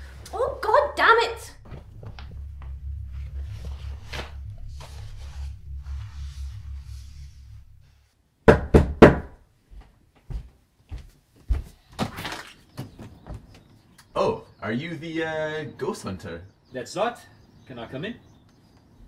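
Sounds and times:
low steady hum: 0.0s - 9.3s
knocks on a door: 8.5s - 9.4s.

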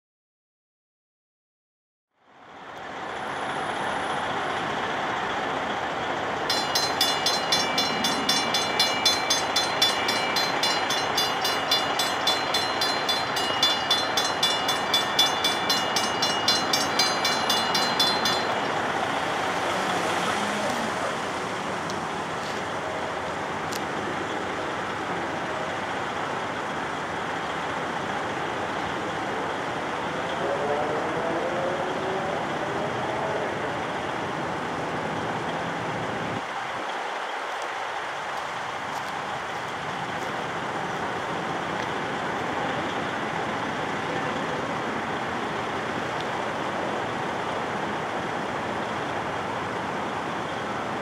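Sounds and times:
steady background noise: 2.3s - 51.0s
railroad crossing bells ringing: 5.4s - 20.8s.

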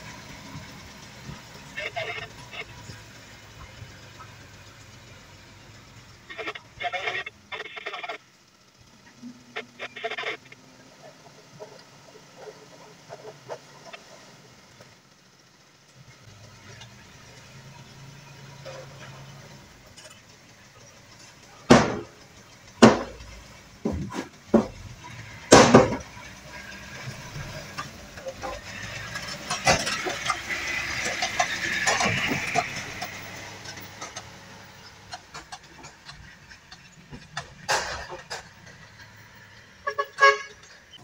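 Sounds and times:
truck engine running: 0.0s - 41.0s
truck tailgate clanking: 21.7s - 22.2s, 25.5s - 26.2s.

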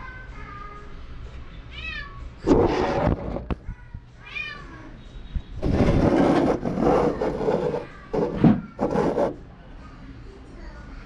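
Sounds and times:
rough noise: 2.4s - 3.6s, 5.6s - 9.4s.

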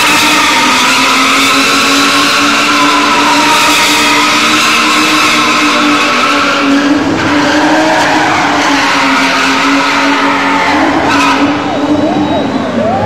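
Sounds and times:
tyres squealing: 0.0s - 12.8s
car engine at high revs: 0.0s - 13.0s.

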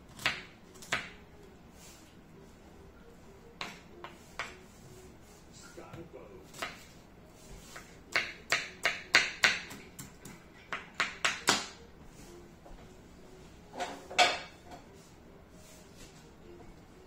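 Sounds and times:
knife chopping on wooden board: 3.6s - 4.6s, 6.5s - 6.9s, 7.6s - 11.8s.

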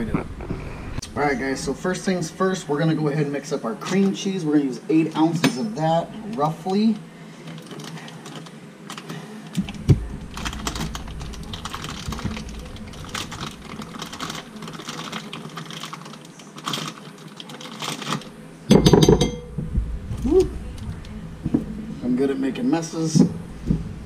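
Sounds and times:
knocks on glass bowl: 18.7s - 19.7s.

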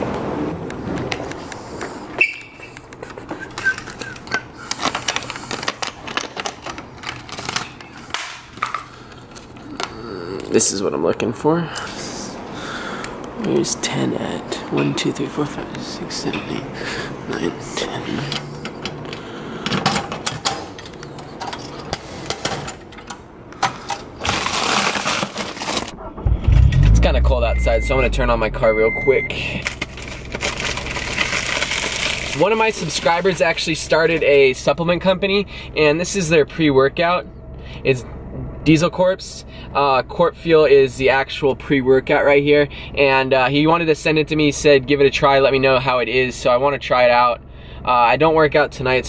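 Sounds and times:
paper rustling: 24.2s - 26.0s, 29.6s - 33.4s
plastic envelope scraping: 24.2s - 26.0s, 29.6s - 33.5s.

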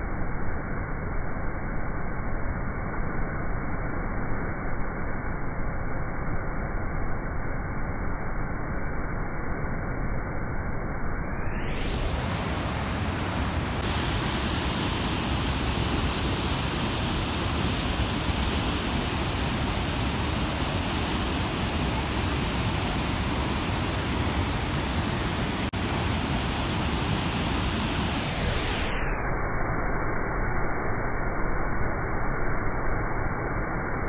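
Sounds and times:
waterfall rushing: 12.0s - 28.6s.

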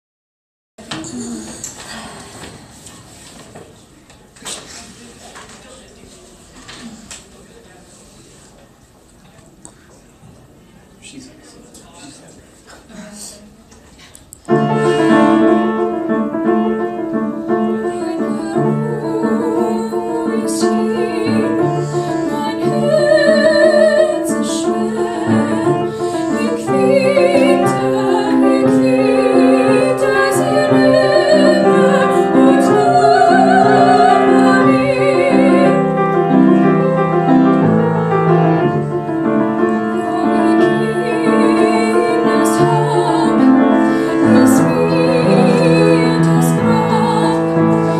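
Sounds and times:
girl singing classical style: 14.5s - 47.9s
piano playing: 14.5s - 47.9s.

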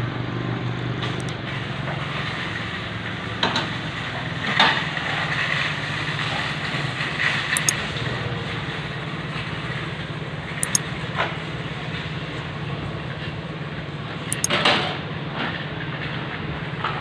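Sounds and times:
light clicks: 10.6s - 10.8s.

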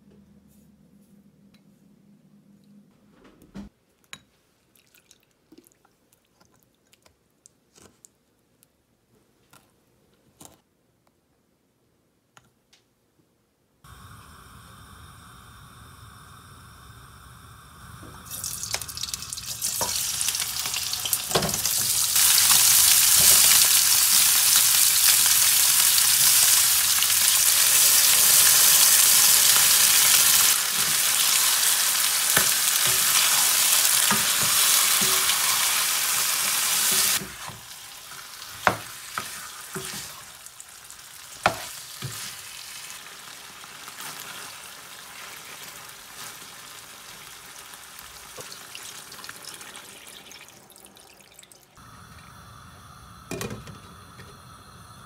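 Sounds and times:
steady hiss: 13.8s - 40.6s, 51.8s - 55.0s
chicken sizzling in hot oil: 13.9s - 55.0s.

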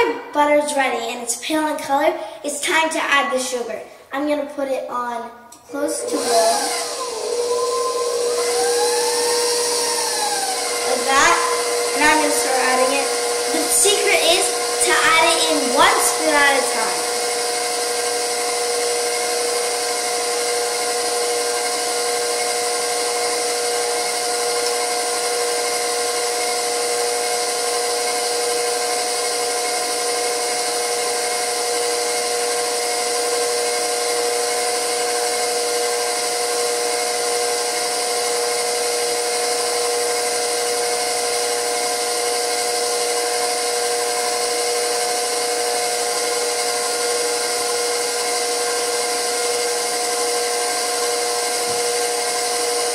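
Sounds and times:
stand mixer motor whine: 5.6s - 52.9s.

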